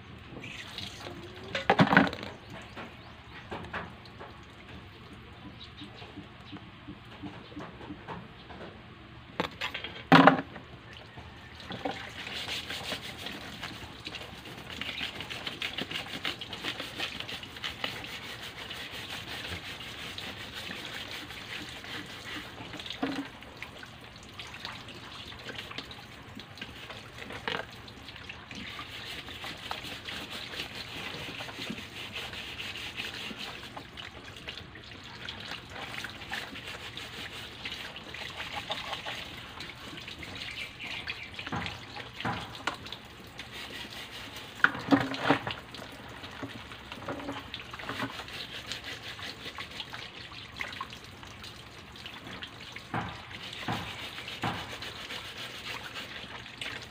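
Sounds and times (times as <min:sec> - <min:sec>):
tap water running into sink: 0:18.8 - 0:32.6, 0:33.2 - 0:48.8, 0:49.8 - 0:56.9.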